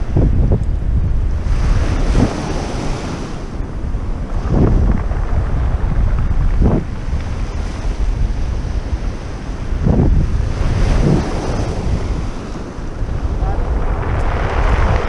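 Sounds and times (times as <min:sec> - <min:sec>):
wind buffeting microphone: 0:00.0 - 0:15.0
waves washing onto pebbles: 0:01.4 - 0:15.0.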